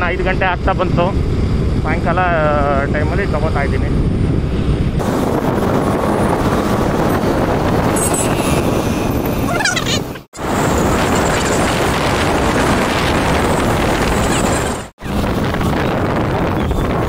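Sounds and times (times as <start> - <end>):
motorcycle engine and road noise: 0.0 - 17.0
wind rushing over microphone: 0.0 - 17.0
warbling tone: 4.8 - 15.2.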